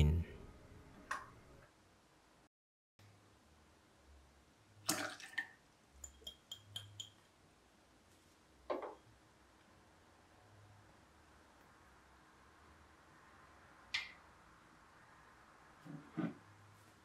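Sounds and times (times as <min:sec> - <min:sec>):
light ringing glass clinks: 0:06.0 - 0:07.2.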